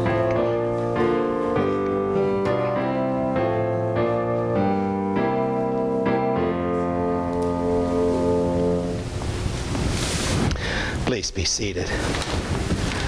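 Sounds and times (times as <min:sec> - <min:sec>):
keyboard playing hymn chords: 0:00.0 - 0:09.7.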